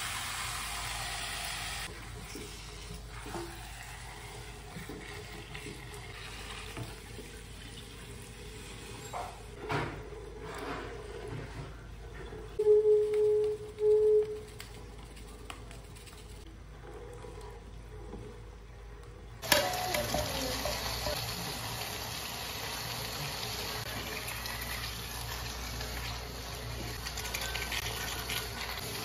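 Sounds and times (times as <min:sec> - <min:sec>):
food sizzling in a frying pan: 0:00.0 - 0:01.9, 0:19.4 - 0:26.4.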